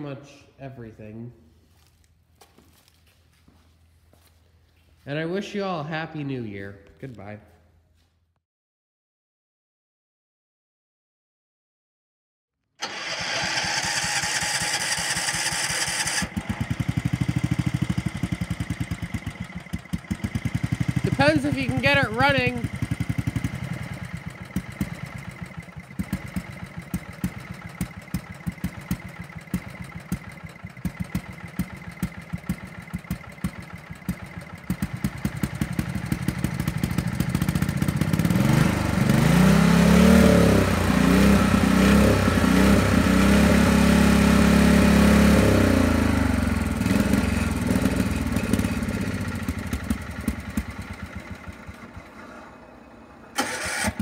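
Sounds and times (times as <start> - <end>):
small engine idling and revving: 12.8 - 54.0.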